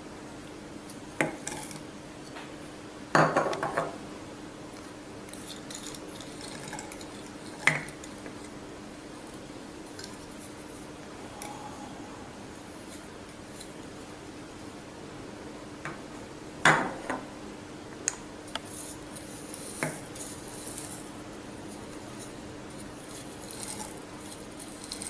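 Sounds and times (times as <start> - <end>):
faint steady hum: 0.0 - 25.0
dry ingredients rattling: 22.1 - 25.0.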